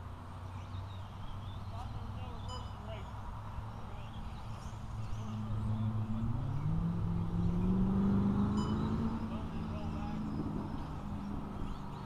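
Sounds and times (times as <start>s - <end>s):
car engine speeding up: 5.2s - 11.6s.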